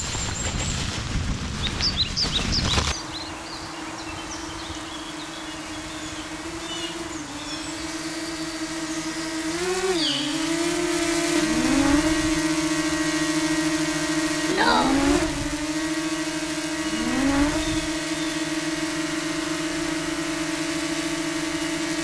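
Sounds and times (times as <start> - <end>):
steady motor hum: 0.0 - 22.0
small birds chirping: 1.6 - 12.4, 16.6 - 20.1.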